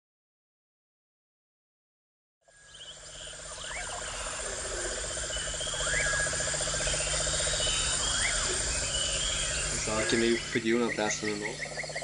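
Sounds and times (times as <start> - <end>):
steady high insect hum: 2.5 - 12.0
rising and falling chirp: 2.6 - 12.0
rapid low pulsing trill: 2.7 - 12.0.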